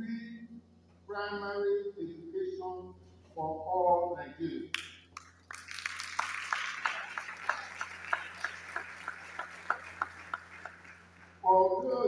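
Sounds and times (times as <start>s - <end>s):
audience clapping in rhythm: 4.7s - 12.0s.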